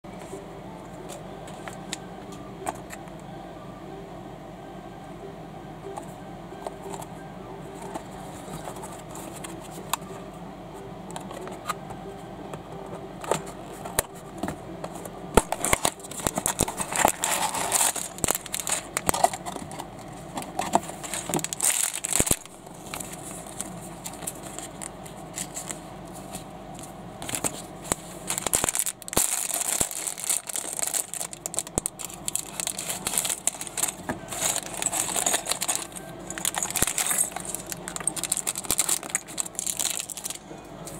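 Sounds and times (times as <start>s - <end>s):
plastic bags crinkling: 15.4s - 19.8s, 20.4s - 25.8s, 27.2s - 40.4s.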